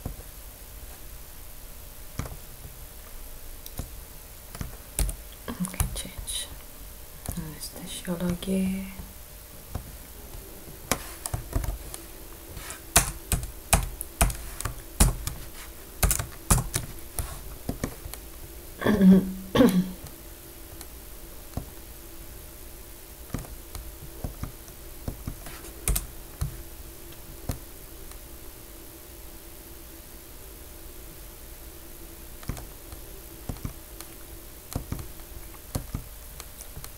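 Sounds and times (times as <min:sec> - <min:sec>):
computer keyboard typing: 0:04.5 - 0:06.0, 0:12.9 - 0:15.4, 0:16.0 - 0:16.9, 0:25.2 - 0:26.1.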